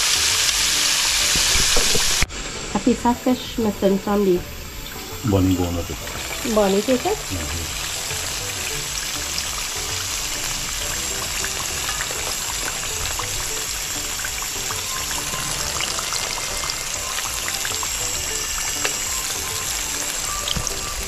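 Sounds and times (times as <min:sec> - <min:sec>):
background music: 0:00.0 - 0:21.0
fish sizzling in hot oil: 0:00.0 - 0:21.0.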